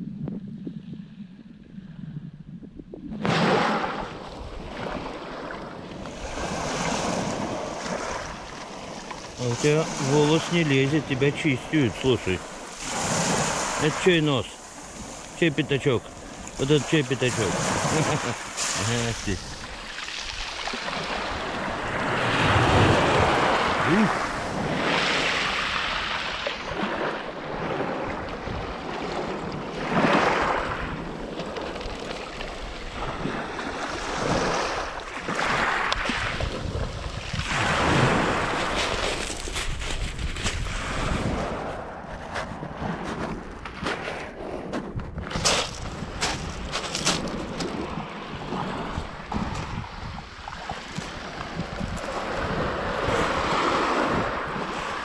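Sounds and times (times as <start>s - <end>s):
wind rumbling on microphone: 0.0s - 13.9s, 16.0s - 55.0s
waves breaking on pebble beach: 3.2s - 55.0s
wind buffeting microphone: 32.5s - 55.0s.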